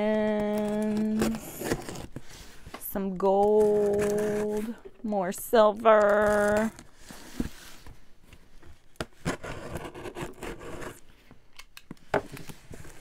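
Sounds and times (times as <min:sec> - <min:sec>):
knife scraping cardboard tape: 0:00.4 - 0:02.3, 0:09.1 - 0:11.0.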